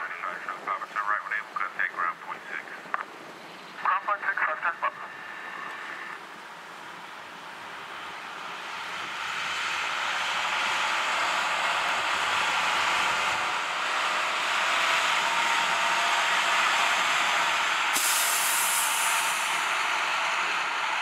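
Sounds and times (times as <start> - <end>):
propeller airplane engine running: 4.3 - 18.0.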